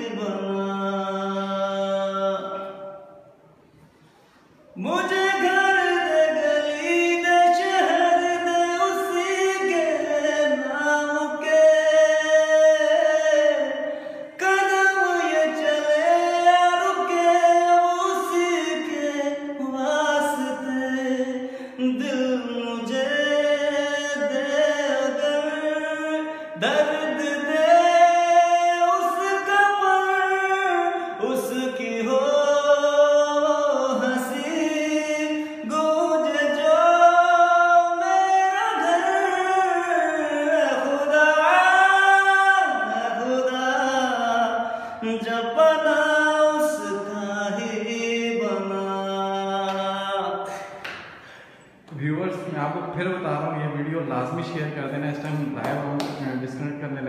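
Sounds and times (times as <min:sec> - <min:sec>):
man singing unaccompanied: 0:00.0 - 0:03.2, 0:04.8 - 0:51.1
singer breathing: 0:03.6 - 0:04.8, 0:13.9 - 0:14.4, 0:21.4 - 0:21.8, 0:44.6 - 0:45.0, 0:50.5 - 0:51.9.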